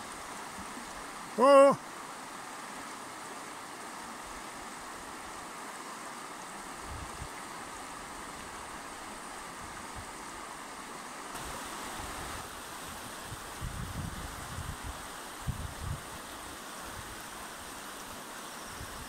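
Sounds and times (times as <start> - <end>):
river rushing over stones: 0.0 - 19.0.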